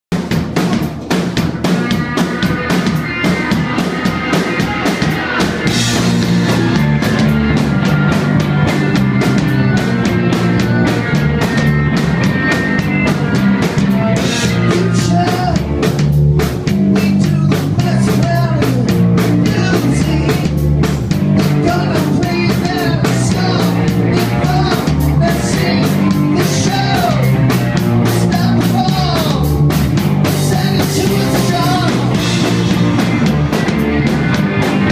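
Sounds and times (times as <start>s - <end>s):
distorted electric guitars: 0.1s - 34.9s
driving drum beat: 0.1s - 34.9s
man singing into microphone: 14.3s - 15.6s, 16.9s - 20.5s, 21.6s - 27.3s, 28.2s - 29.6s, 30.4s - 32.2s.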